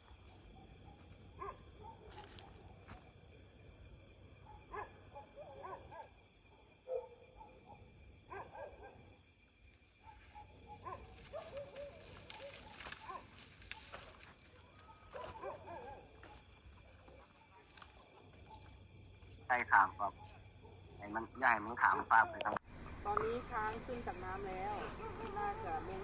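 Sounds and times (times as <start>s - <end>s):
faint bark-like animal yelps: 4.4s - 9.1s, 10.0s - 13.3s, 14.6s - 16.4s.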